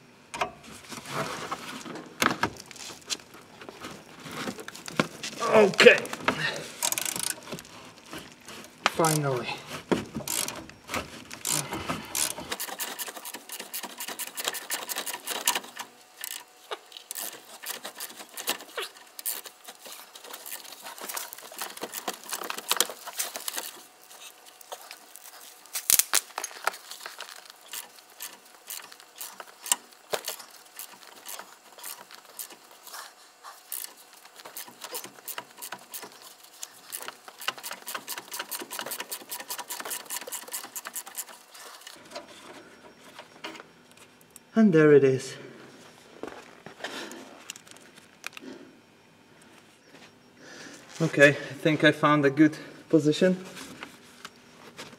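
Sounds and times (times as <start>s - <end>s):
socket ratchet clicking: 6.8s - 7.4s, 10.2s - 10.6s.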